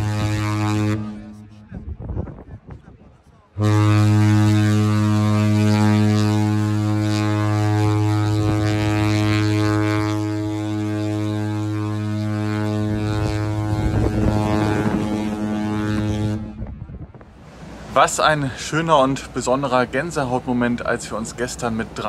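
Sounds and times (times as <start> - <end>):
ship horn deep blast: 0.0 - 2.1, 3.5 - 19.6.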